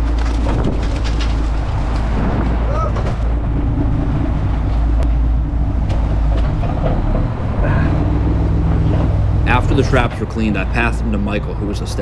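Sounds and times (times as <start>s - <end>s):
boat engine droning: 0.0s - 12.0s.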